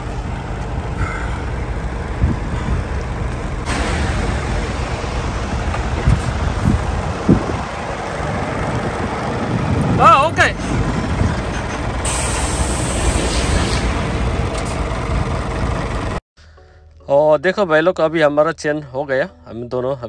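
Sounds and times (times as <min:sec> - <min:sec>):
diesel truck engine running: 0:00.0 - 0:16.2
hiss: 0:12.0 - 0:14.0.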